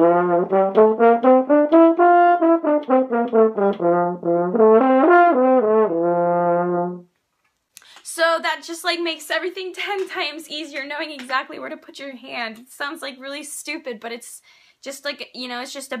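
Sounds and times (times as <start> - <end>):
french horn playing a scale: 0.0 - 7.1.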